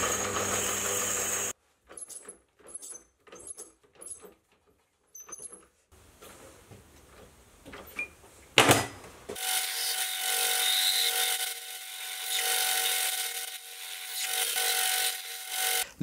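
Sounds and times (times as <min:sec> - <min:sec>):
lathe motor running: 0:00.0 - 0:01.5.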